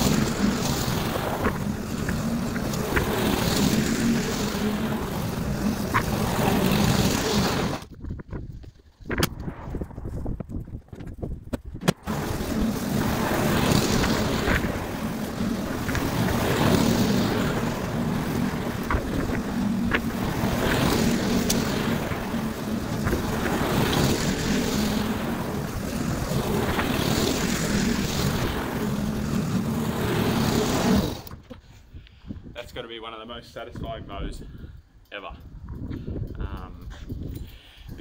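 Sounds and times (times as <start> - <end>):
lawn mower engine running: 0.0 - 7.9, 11.9 - 31.4.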